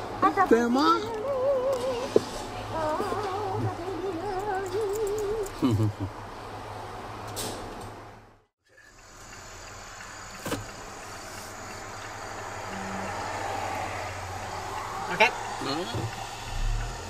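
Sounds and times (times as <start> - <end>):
car road and engine rumble: 0.0 - 17.0
tyre hiss: 8.7 - 17.0.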